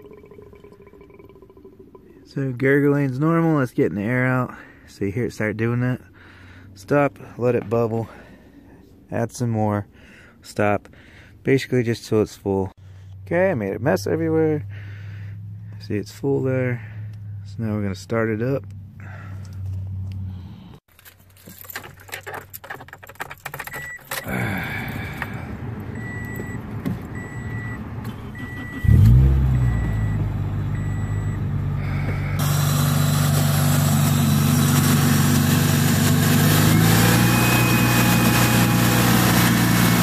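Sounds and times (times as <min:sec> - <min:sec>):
clicks and shuffling: 0:20.9 - 0:25.4
car engine starting and idling: 0:23.2 - 0:40.0
car warning chime beeping: 0:25.9 - 0:32.4.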